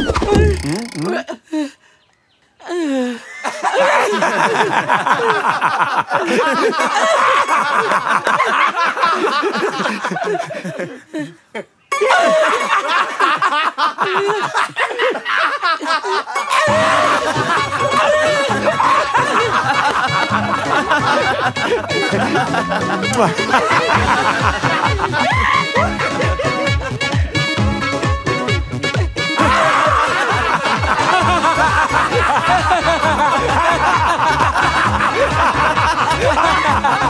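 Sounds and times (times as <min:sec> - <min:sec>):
men laughing: 0:00.0 - 0:01.8, 0:02.7 - 0:27.8, 0:28.9 - 0:37.0
background music with bass: 0:16.6 - 0:37.0.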